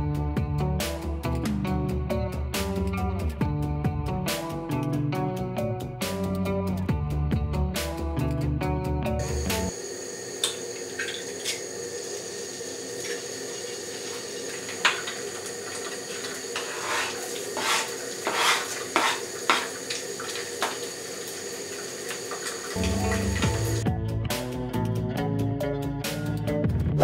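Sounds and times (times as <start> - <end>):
steady background hum: 9.2 - 23.8
egg cracking: 10.3 - 23.8
knife scraping cutting board: 15.8 - 20.8.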